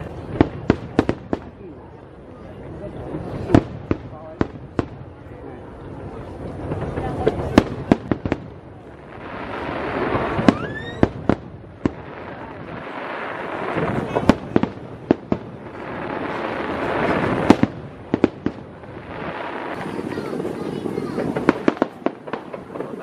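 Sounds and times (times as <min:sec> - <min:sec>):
firework bangs: 0:00.0 - 0:02.1, 0:03.0 - 0:23.0
firework crackling hiss: 0:05.9 - 0:23.0
firework rising whistle: 0:09.5 - 0:11.2.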